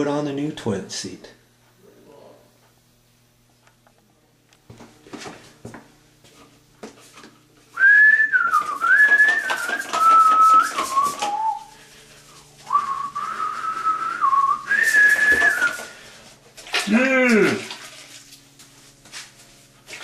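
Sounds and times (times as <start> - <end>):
person whistling a tune: 7.8 - 11.7, 12.6 - 15.8.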